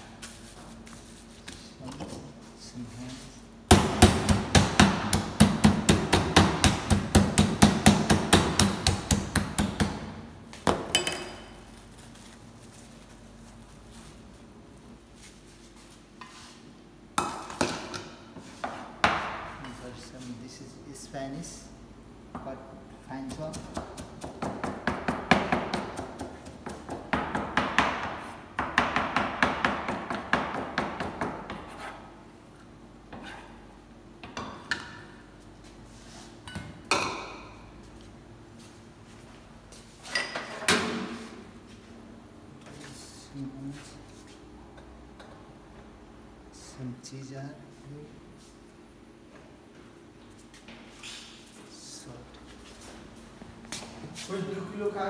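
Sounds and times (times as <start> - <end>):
meat mallet pounding meat: 3.7 - 10.1, 23.3 - 31.7
knife chopping on cutting board: 23.3 - 31.8.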